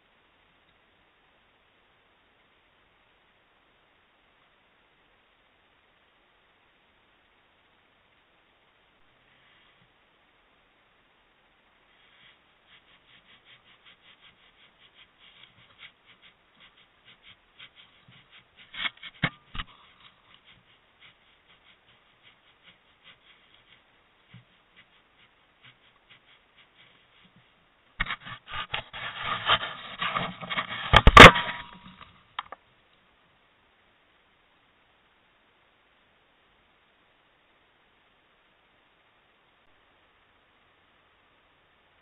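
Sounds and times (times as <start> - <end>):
faint clicking and crunching: 11.8 - 33.0
rubbing and scraping: 11.9 - 32.6.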